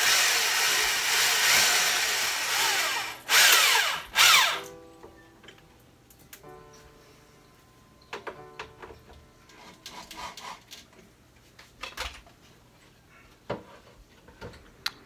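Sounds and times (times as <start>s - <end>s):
cordless drill whine: 0.0s - 4.7s.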